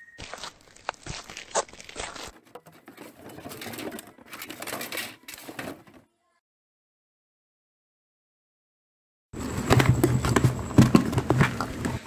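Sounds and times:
footsteps on dry leaves: 0:00.0 - 0:02.4
plastic bottles being handled: 0:00.2 - 0:06.0.

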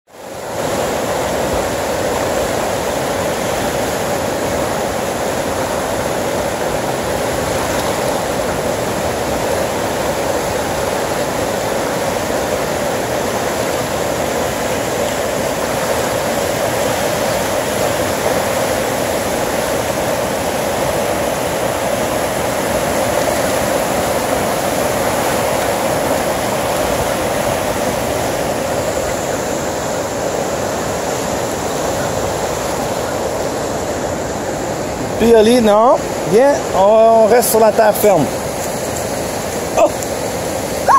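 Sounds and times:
river rapids rushing: 0:00.1 - 0:40.9.

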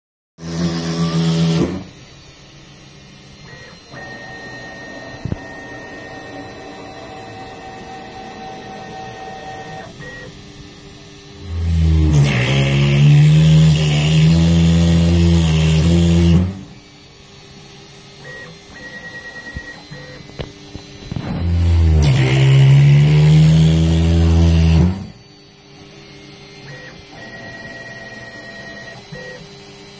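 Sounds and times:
cnc router whine: 0:00.4 - 0:29.9.

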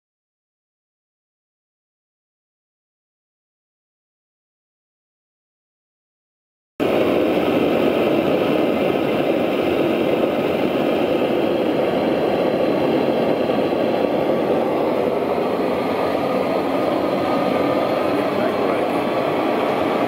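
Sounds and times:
blowlamp flame rushing: 0:06.8 - 0:20.0.

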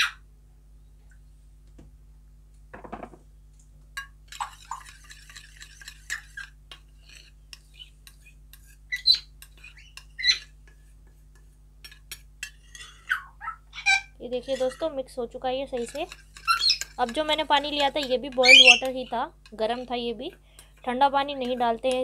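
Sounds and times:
spoon stirring thick formula: 0:04.0 - 0:13.2, 0:13.9 - 0:22.0
spoon clinking against metal bowl: 0:15.7 - 0:19.9.

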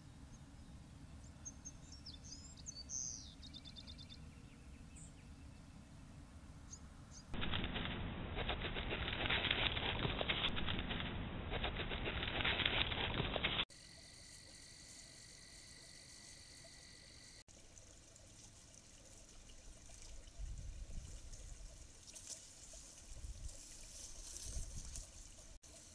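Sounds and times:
rustling in dry leaves: 0:07.4 - 0:13.6, 0:17.7 - 0:25.9.

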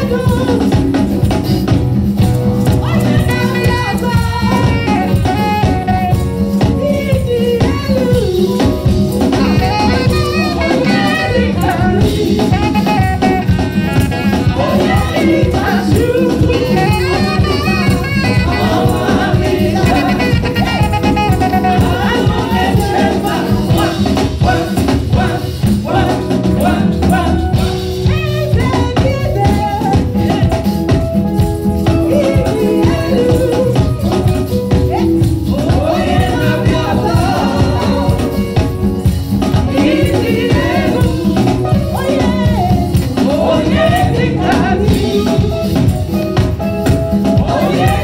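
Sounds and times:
woman singing into microphone: 0:00.0 - 0:01.2, 0:02.7 - 0:13.6, 0:14.3 - 0:24.1, 0:26.6 - 0:31.0, 0:31.8 - 0:46.2, 0:47.3 - 0:48.0
steady drum beat: 0:00.0 - 0:48.0
backing singers: 0:09.4 - 0:28.4, 0:35.0 - 0:38.9, 0:39.5 - 0:45.8, 0:47.2 - 0:48.0.

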